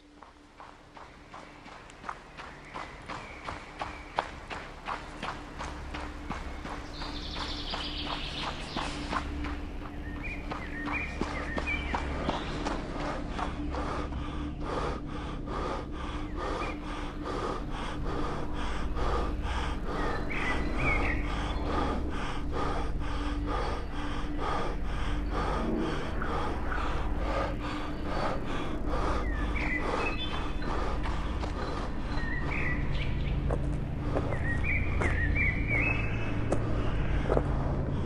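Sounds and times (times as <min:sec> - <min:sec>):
running footfalls: 0:00.0 - 0:14.0
bird chirps: 0:01.2 - 0:13.8, 0:16.1 - 0:22.5, 0:26.3 - 0:37.4
man panting hard: 0:04.7 - 0:38.0.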